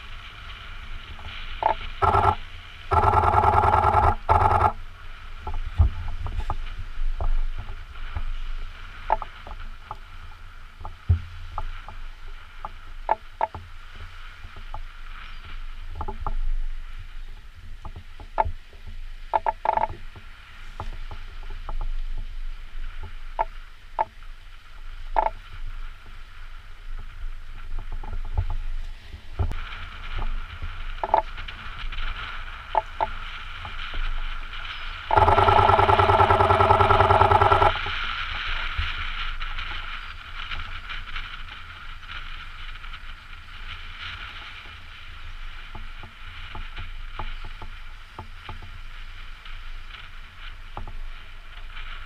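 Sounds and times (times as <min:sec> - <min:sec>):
loud steady buzz: 0:00.0 - 0:16.6, 0:29.4 - 0:48.7
gulls calling: 0:01.6 - 0:04.8, 0:34.6 - 0:37.9
waves splashing against rocks: 0:29.6 - 0:42.9.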